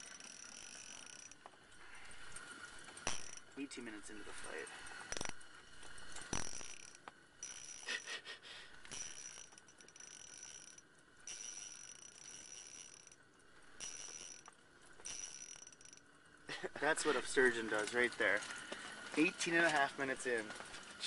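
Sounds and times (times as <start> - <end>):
fishing reel drag buzzing: 0.0 - 8.1, 8.7 - 16.1.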